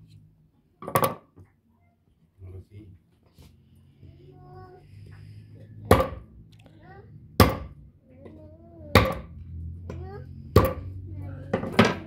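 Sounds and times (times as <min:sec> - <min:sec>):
machete chopping meat on wood: 0:07.4 - 0:07.7.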